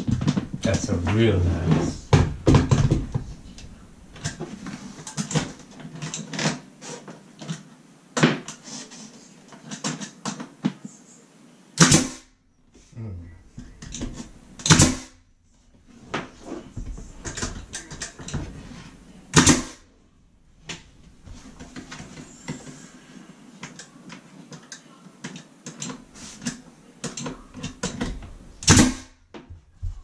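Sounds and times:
pneumatic nail gun firing: 0:11.8 - 0:12.2, 0:14.6 - 0:15.1, 0:19.3 - 0:19.8, 0:28.6 - 0:29.1.

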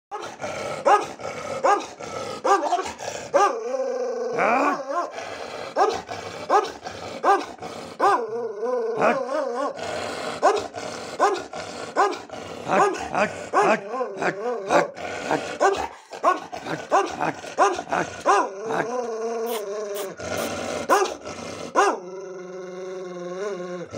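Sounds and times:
dog barking: 0:00.1 - 0:03.6, 0:05.8 - 0:08.2, 0:10.4 - 0:18.9, 0:20.9 - 0:21.2, 0:21.8 - 0:22.0.

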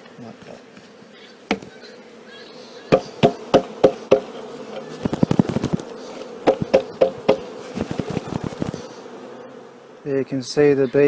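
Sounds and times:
bees humming: 0:00.0 - 0:11.0
wooden box knocking: 0:02.9 - 0:04.3, 0:06.4 - 0:07.5.

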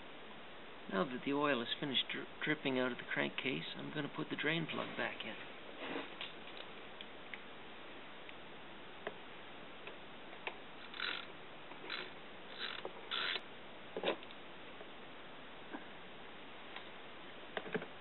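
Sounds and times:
socket wrench ratcheting: 0:10.8 - 0:13.4.

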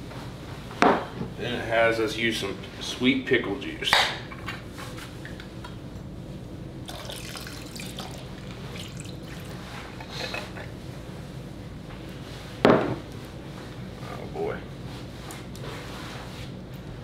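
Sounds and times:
liquid pouring and splashing: 0:06.8 - 0:10.1.

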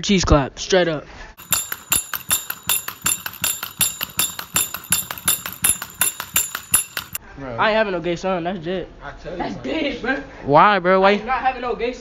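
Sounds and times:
toy monkey clashing cymbals: 0:01.4 - 0:07.2.

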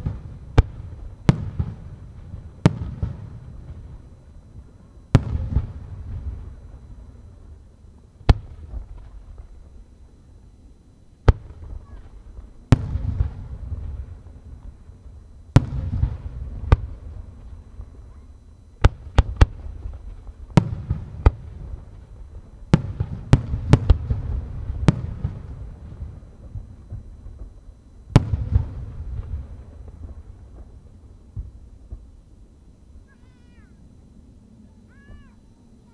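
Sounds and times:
firework shells booming: 0:00.0 - 0:04.4, 0:05.0 - 0:06.9, 0:11.2 - 0:18.2, 0:18.8 - 0:32.4.

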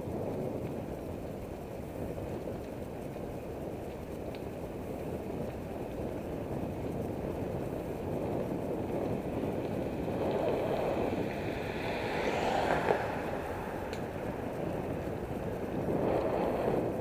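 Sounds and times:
road noise: 0:00.0 - 0:17.0
wind buffeting microphone: 0:00.0 - 0:17.0
car passing: 0:07.6 - 0:17.0.

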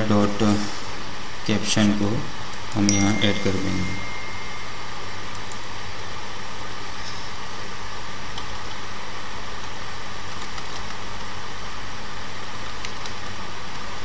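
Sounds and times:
background hiss: 0:00.0 - 0:14.0
low electrical hum: 0:00.0 - 0:14.0
computer keys typing: 0:05.2 - 0:05.7, 0:10.3 - 0:11.0.

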